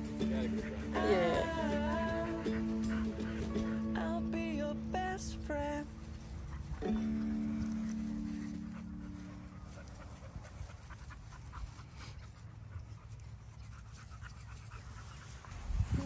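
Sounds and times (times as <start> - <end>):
dog panting: 0.0 - 4.0, 6.4 - 16.0.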